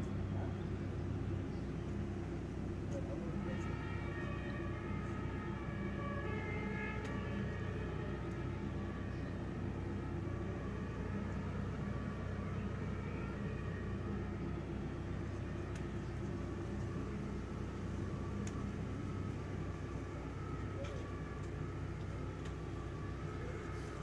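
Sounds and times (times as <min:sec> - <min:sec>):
engine idling hum: 0:00.0 - 0:24.0
faint clicks: 0:15.7 - 0:15.9, 0:18.4 - 0:18.7.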